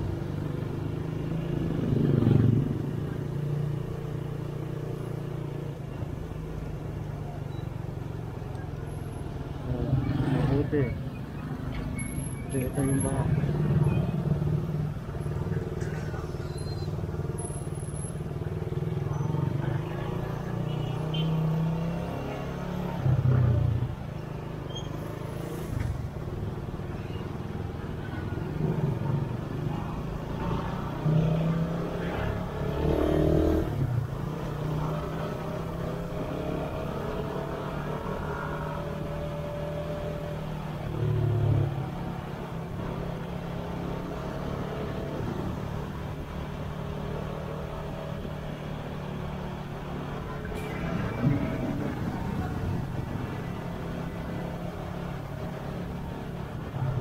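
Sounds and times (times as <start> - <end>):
vehicles passing: 0.0 - 57.0.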